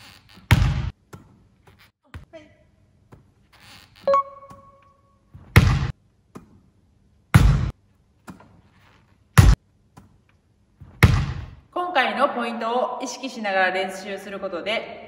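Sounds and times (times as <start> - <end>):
volleyball thuds with echo: 5.4 - 6.6, 7.3 - 8.5, 9.4 - 10.1, 10.8 - 11.6.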